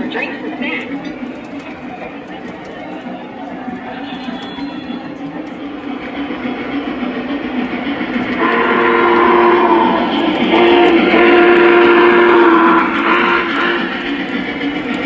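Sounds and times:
model train running: 0.0 - 15.0
model train steam whistle: 4.0 - 5.2, 8.4 - 14.1.

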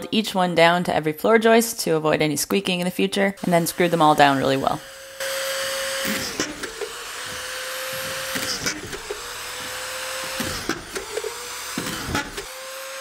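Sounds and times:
screw gun whining: 3.4 - 13.0.

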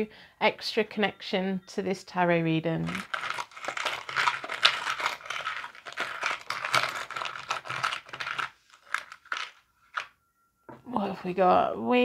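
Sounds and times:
metal coins clinking and rattling: 2.8 - 10.1.

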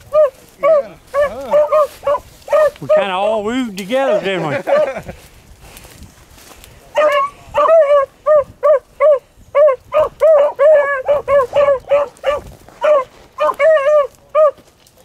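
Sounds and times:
dog yelping barks: 0.1 - 3.1, 4.1 - 5.0, 7.0 - 14.6.

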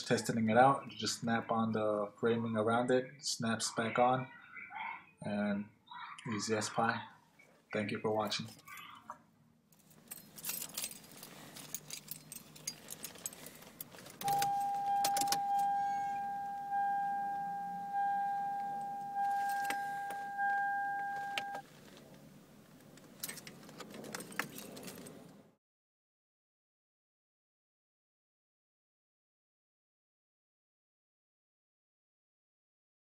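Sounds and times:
car keys jangling: 9.8 - 22.0, 23.0 - 25.4
car stereo powering on: 14.2 - 21.6
dashboard warning chime: 14.2 - 21.6.

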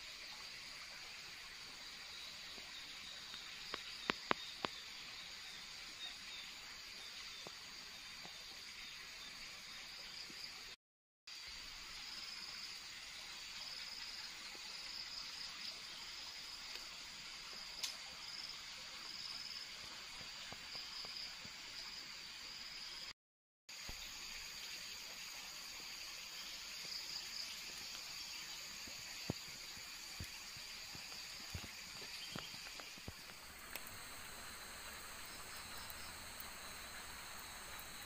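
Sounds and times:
forest ambience hiss: 0.0 - 23.1, 23.7 - 38.0
insect chorus buzzing: 23.7 - 38.0
faint clicks: 31.5 - 34.0.

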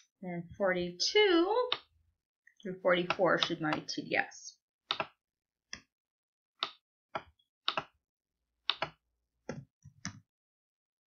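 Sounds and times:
computer mouse clicking: 4.9 - 5.9, 6.6 - 7.9, 8.7 - 10.2.

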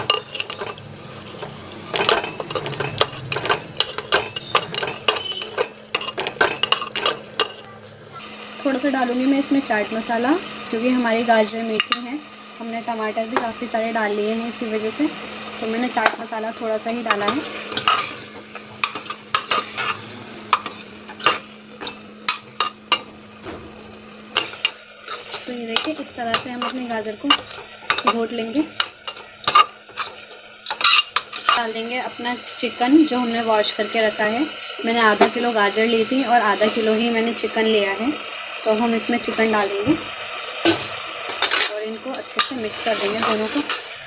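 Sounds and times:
ladle scraping a metal pot: 0.0 - 7.6
metal spoon clinking in a pot: 0.0 - 7.7, 17.0 - 23.6, 24.4 - 31.6.

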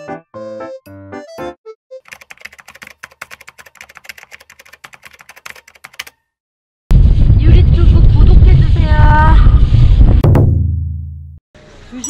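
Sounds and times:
keyboard typing clicks: 2.1 - 6.2.

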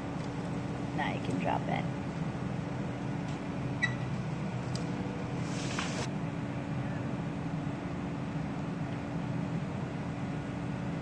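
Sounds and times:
crane engine running: 0.0 - 11.0
brief hiss: 5.4 - 6.1.

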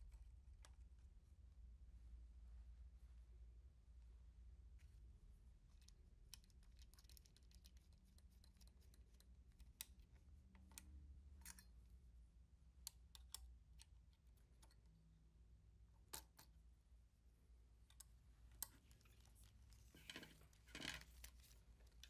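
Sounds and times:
small metal parts clicking: 5.8 - 11.8.

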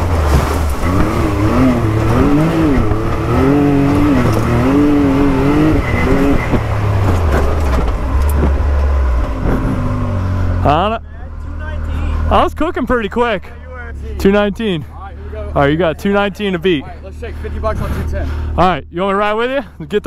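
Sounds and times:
engine revving hard: 0.0 - 8.6.

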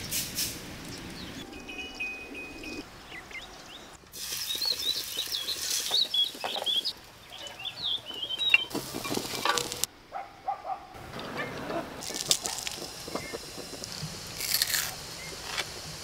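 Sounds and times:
small birds chirping: 0.8 - 9.5, 11.2 - 13.4, 15.0 - 15.9.

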